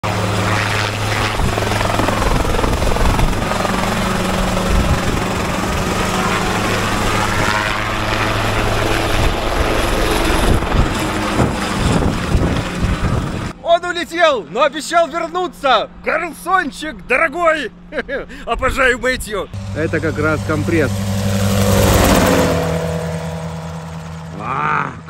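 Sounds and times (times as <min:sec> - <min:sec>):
helicopter engine running: 0:00.0 - 0:13.6, 0:19.5 - 0:24.8
helicopter rotor blades beating: 0:00.0 - 0:13.6, 0:17.2 - 0:24.8.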